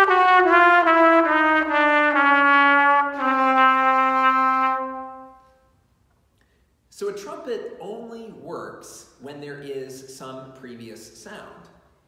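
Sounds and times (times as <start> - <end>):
trumpet playing descending notes: 0.0 - 5.5.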